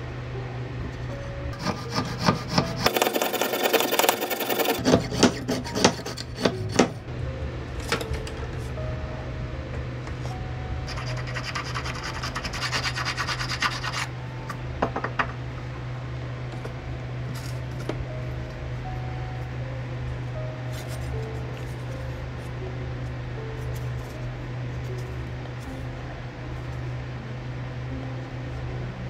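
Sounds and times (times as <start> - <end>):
steady low hum: 0.0 - 29.0
file rasping on wood: 1.6 - 7.0, 10.9 - 14.1.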